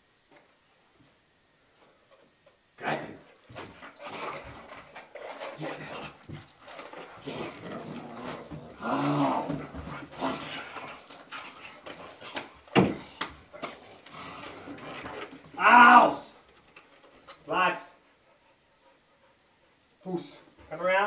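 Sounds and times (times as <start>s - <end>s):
young dog growling: 7.1s - 11.1s.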